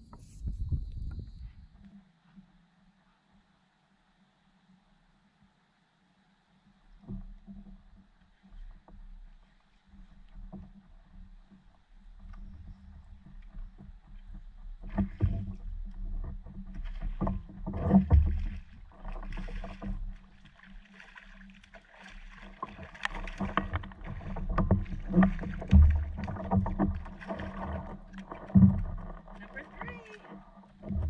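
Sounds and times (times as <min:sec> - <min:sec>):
water splashing: 0:12.4 - 0:31.0.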